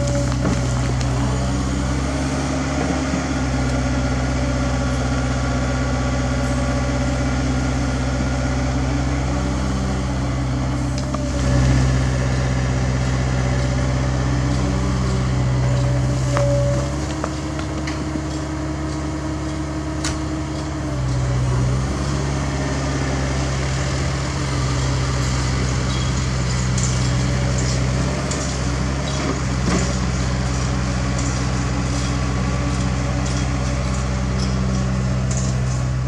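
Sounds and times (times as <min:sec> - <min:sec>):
knocks of soil and bucket: 0:00.0 - 0:01.3, 0:24.6 - 0:36.0
dump truck diesel engine: 0:00.0 - 0:36.0
excavator diesel engine: 0:00.0 - 0:36.0.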